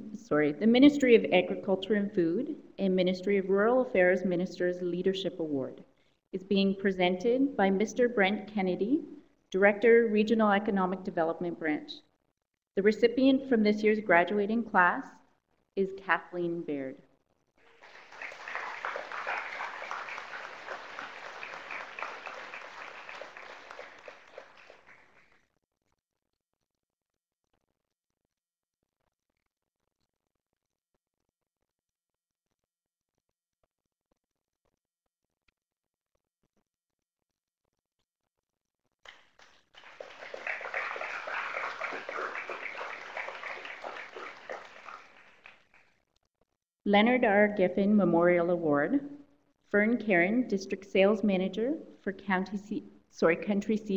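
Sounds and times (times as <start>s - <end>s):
audience applauding: 17.6s - 25.3s, 39.1s - 45.8s.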